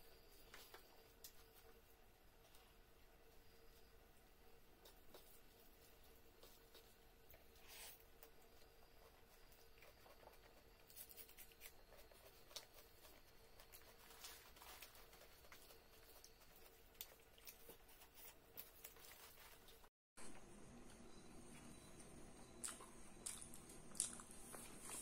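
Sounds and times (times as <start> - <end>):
mouth chewing: 9.3 - 19.8, 22.5 - 25.0.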